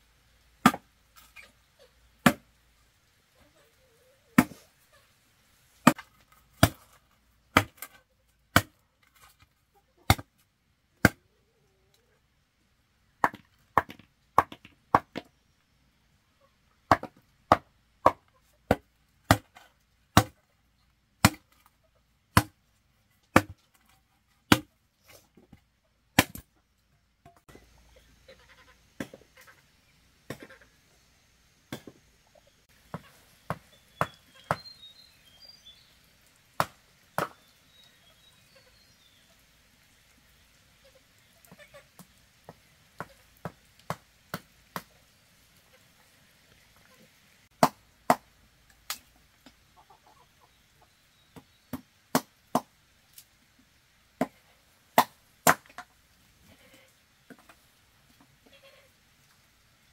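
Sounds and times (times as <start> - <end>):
blade chopping on wood: 20.2 - 20.4, 23.4 - 23.6, 24.5 - 24.7.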